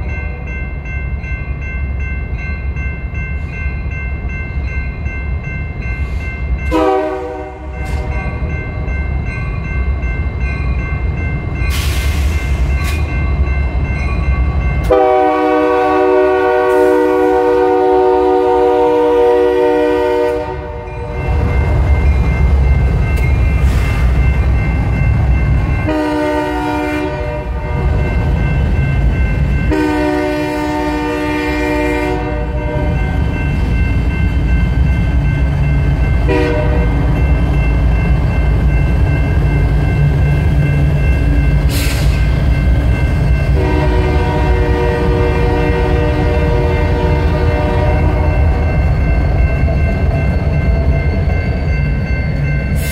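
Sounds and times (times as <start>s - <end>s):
diesel locomotive engines rumbling: 0.0s - 52.9s
air horn blasts: 6.7s - 7.7s, 14.9s - 20.8s, 25.9s - 27.8s, 29.7s - 33.0s, 36.3s - 36.9s, 43.6s - 48.3s.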